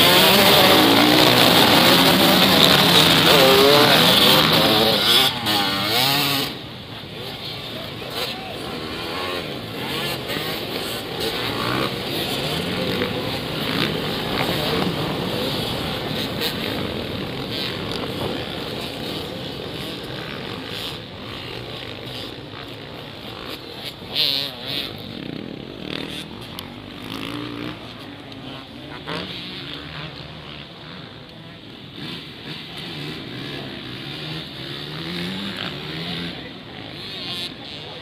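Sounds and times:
dirt bike engines racing: 0.0 - 38.0.

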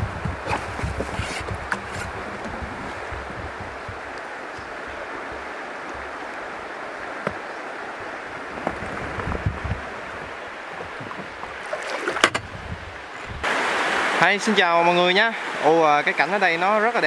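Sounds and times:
paddle knocking and clicking: 0.0 - 7.5, 8.5 - 13.4
paddle splashing: 0.0 - 14.2
water rushing: 0.0 - 17.0.

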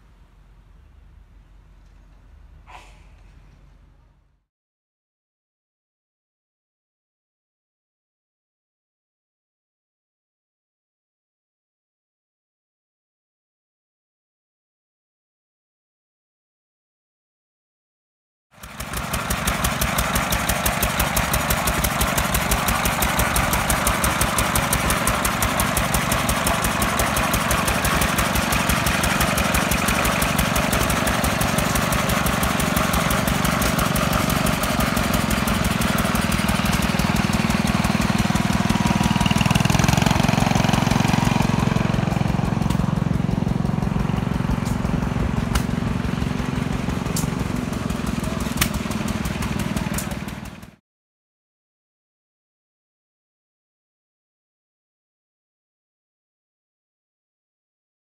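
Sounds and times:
small engine running: 18.6 - 50.8.

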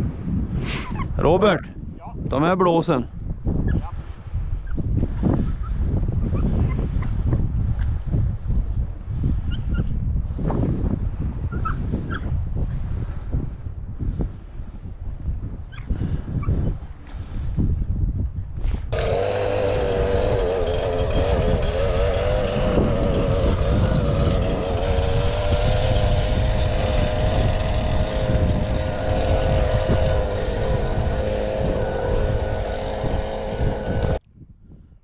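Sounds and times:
motor whining over rumble: 18.9 - 34.2.

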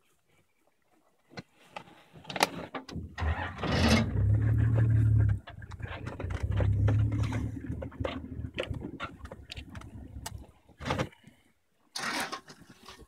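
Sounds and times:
vehicle engine humming: 3.2 - 10.4.

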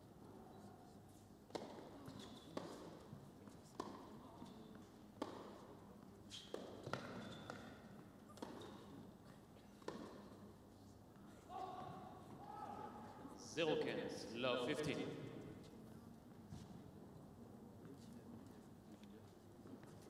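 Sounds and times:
racket hitting tennis ball: 1.5 - 1.9, 5.2 - 5.6, 6.5 - 7.7, 9.8 - 10.2
tennis ball bouncing: 1.5 - 1.9, 2.6 - 3.0, 3.8 - 4.1, 4.8 - 5.6, 6.5 - 8.9, 9.8 - 10.3.

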